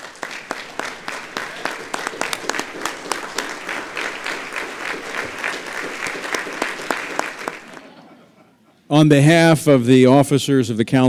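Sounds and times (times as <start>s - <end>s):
sharp close claps: 0.0s - 7.8s
audience applauding: 0.0s - 7.9s.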